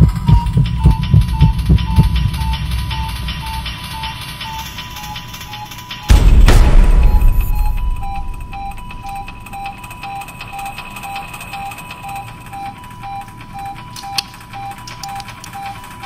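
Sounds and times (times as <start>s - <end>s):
short repeating beeps: 0.0s - 15.8s
steady high alarm tone: 0.0s - 16.0s
clicks and handling noise: 13.2s - 16.0s.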